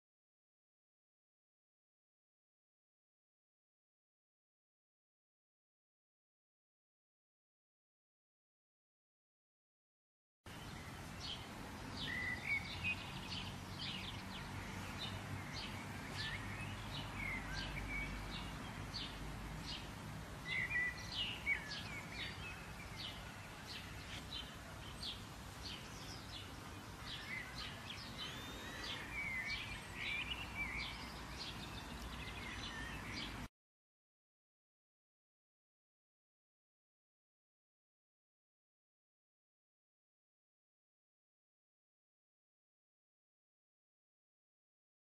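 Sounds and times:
birds chirping: 10.5 - 33.5
outdoor background hiss: 10.5 - 33.5.

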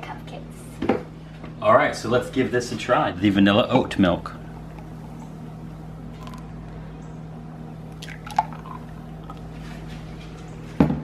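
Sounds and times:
steady low hum: 0.0 - 11.0
milk pouring into glasses: 7.9 - 9.5.

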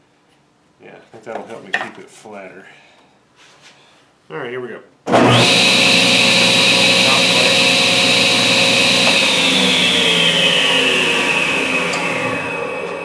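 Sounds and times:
table saw whine: 5.1 - 13.0.

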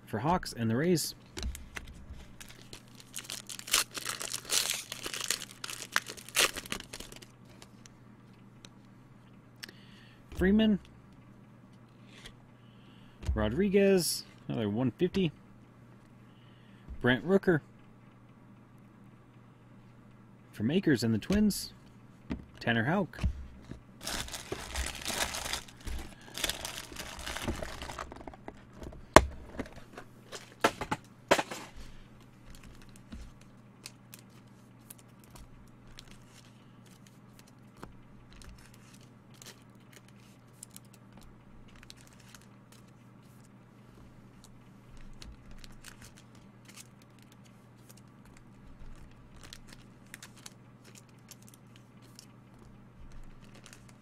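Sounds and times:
cards rustling and ticking: 1.3 - 8.0, 23.6 - 43.6, 44.3 - 54.0
plastic wrapper crinkling and tearing: 1.4 - 7.7, 24.0 - 28.7, 32.5 - 37.6, 38.3 - 41.0, 41.7 - 43.0, 44.4 - 52.3, 53.1 - 54.0.

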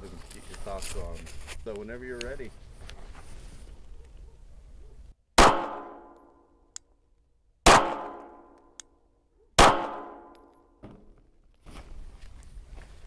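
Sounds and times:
pistol shots: 5.4 - 6.2, 7.6 - 8.6, 9.6 - 10.5.

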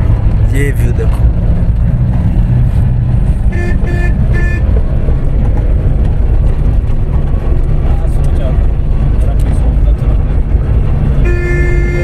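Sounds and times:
car engine and road rumble: 0.0 - 12.0
car horn toots: 3.5 - 4.8, 11.2 - 12.0.

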